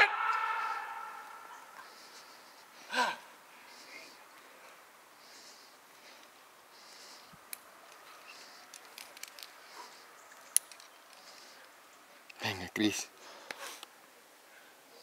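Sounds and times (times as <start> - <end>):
person breathing rhythmically: 1.2 - 10.3, 11.1 - 11.9.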